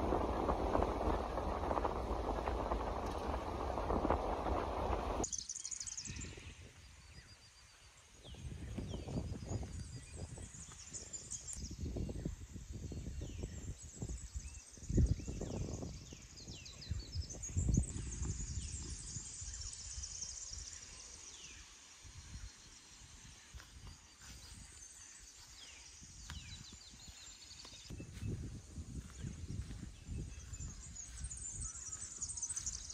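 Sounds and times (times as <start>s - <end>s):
birds whistling and chirping: 23.6s - 32.9s.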